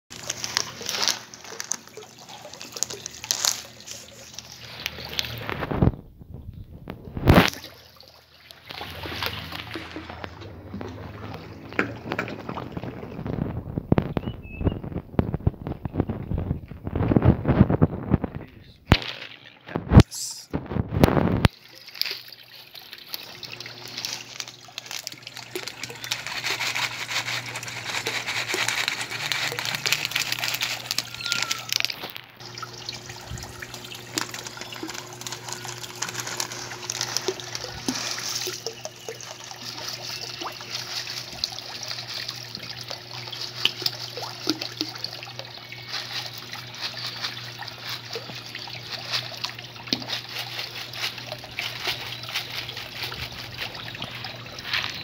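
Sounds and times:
water trickling and splashing: 0:00.1 - 0:17.7, 0:18.8 - 0:55.0
constant low hum: 0:00.2 - 0:55.0.

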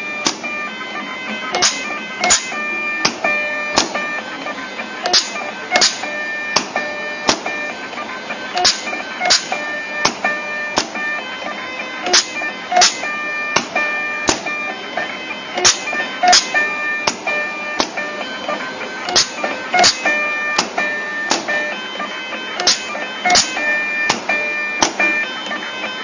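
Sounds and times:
motor whine: 0:00.0 - 0:26.0.

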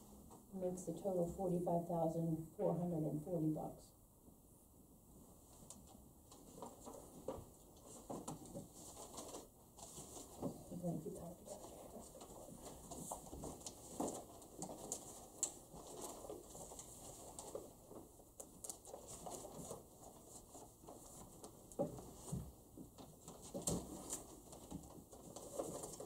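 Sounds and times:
faint room noise: 0:00.0 - 0:26.0
paper rustling: 0:05.5 - 0:26.0.

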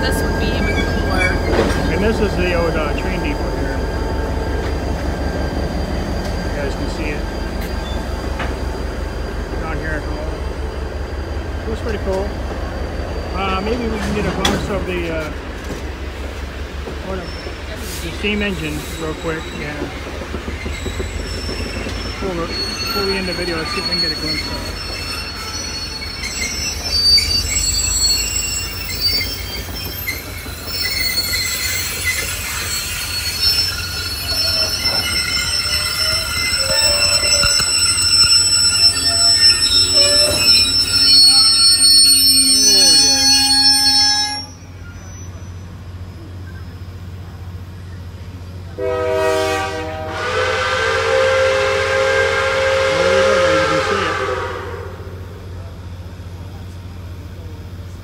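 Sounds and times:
train wheels squealing on track: 0:00.0 - 0:58.0
steam locomotive whistle: 0:30.7 - 0:45.5, 0:48.8 - 0:55.2.

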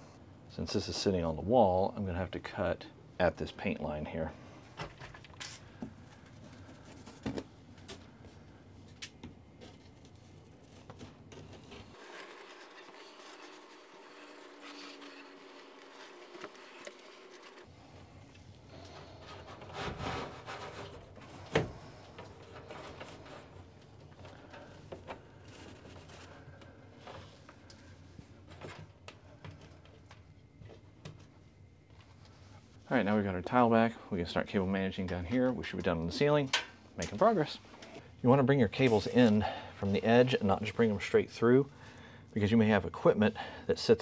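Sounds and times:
ceiling tile scraping against grid: 0:18.9 - 0:21.4.

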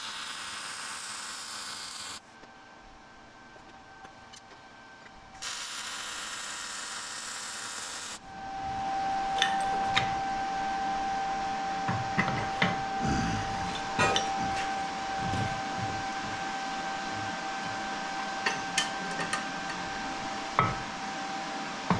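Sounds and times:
welding arc hissing: 0:00.0 - 0:02.2, 0:05.4 - 0:08.2.

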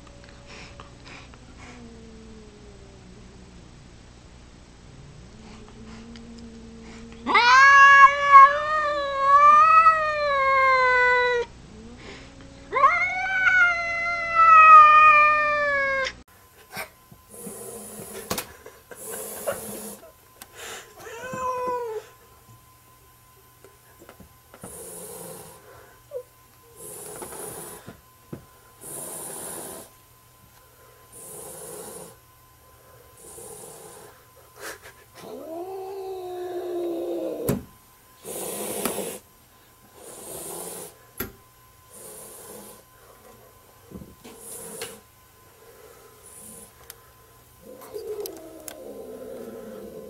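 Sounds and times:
cat growling and hissing: 0:00.4 - 0:03.4, 0:05.0 - 0:16.2, 0:16.8 - 0:18.3, 0:19.0 - 0:20.1, 0:24.6 - 0:27.9, 0:28.8 - 0:29.9, 0:31.1 - 0:32.2, 0:33.2 - 0:34.2, 0:34.8 - 0:37.6, 0:38.2 - 0:39.3, 0:40.0 - 0:41.0, 0:41.9 - 0:42.9, 0:44.3 - 0:45.1, 0:47.6 - 0:50.0
cat yowl: 0:07.2 - 0:11.5, 0:12.7 - 0:16.2, 0:21.0 - 0:22.1.

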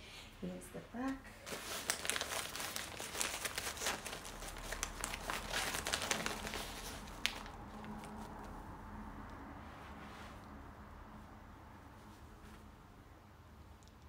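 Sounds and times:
fabric rustling and crinkling: 0:01.3 - 0:08.7.

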